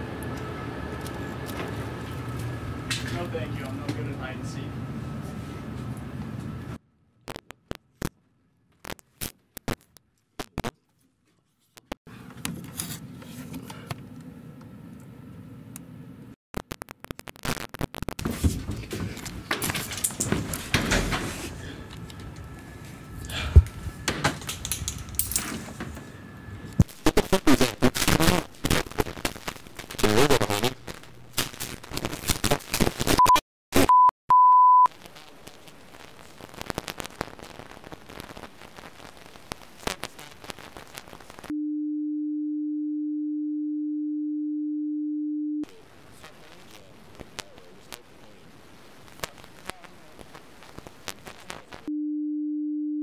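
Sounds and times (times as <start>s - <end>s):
short high censor bleeps: 33.2s - 34.9s.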